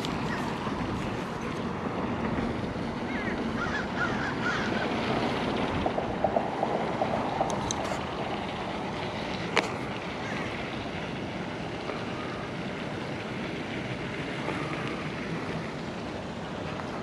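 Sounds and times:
wind rushing over microphone: 0:00.0 - 0:12.7.

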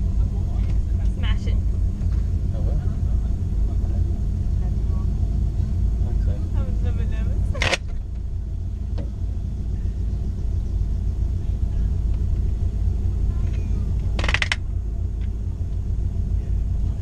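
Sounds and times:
car engine idling: 0:00.0 - 0:17.0
rattle of clicks: 0:13.5 - 0:15.4.

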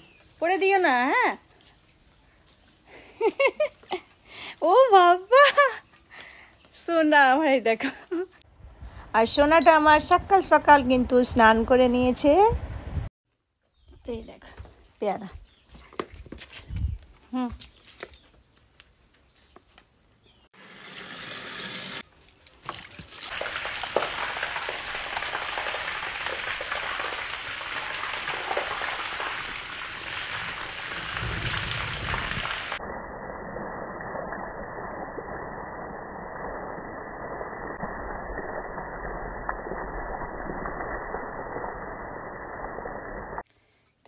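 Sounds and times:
water gushing from a hose: 0:20.6 - 0:22.1, 0:22.7 - 0:43.4.

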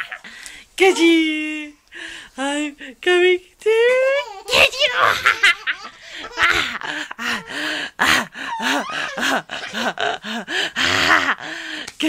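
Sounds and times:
baby laughing: 0:04.1 - 0:10.3
baby gasping breaths: 0:05.9 - 0:11.9.

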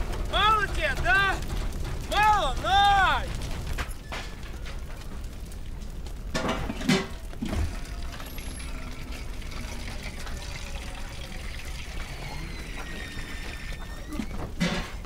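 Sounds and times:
urine trickling into metal basin: 0:06.8 - 0:12.6.

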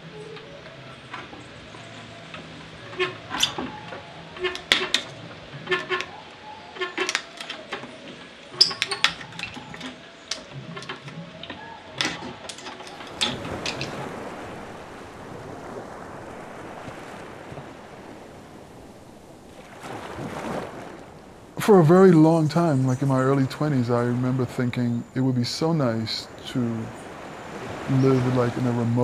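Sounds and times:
surf breaking on beach: 0:12.9 - 0:29.0.

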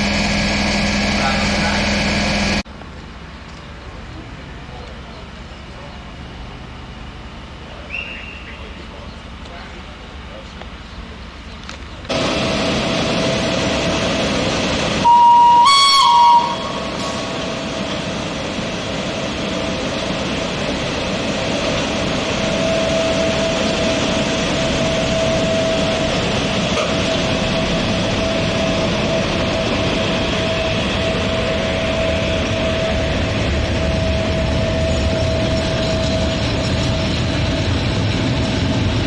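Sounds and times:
constant locomotive whine: 0:00.0 - 0:39.0
train wheels rumbling on rails: 0:00.0 - 0:39.0
train horn: 0:15.0 - 0:17.2.

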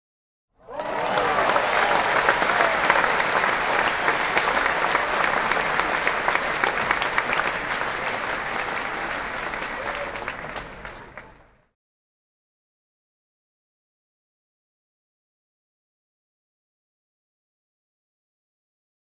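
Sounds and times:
crowd applauding: 0:00.6 - 0:11.7.

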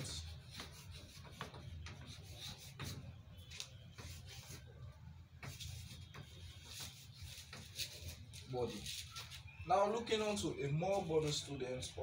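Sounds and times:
chalk scraping on blackboard: 0:00.0 - 0:09.6.

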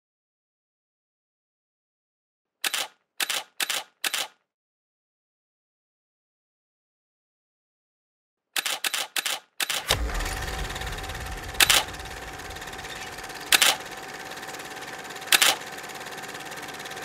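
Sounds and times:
projector mechanical clicks: 0:09.7 - 0:17.0
film projector whirring: 0:09.8 - 0:17.0.

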